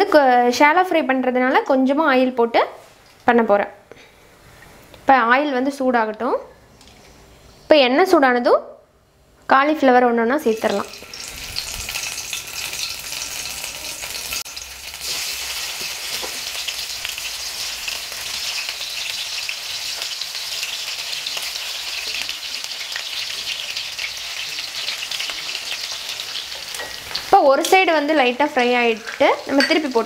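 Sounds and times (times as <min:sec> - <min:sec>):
food sizzling in hot oil: 0:10.4 - 0:30.0.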